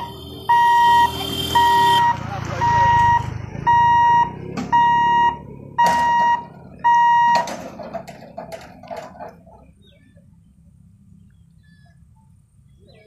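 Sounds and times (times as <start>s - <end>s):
warning buzzer beeps: 0.0s - 7.4s.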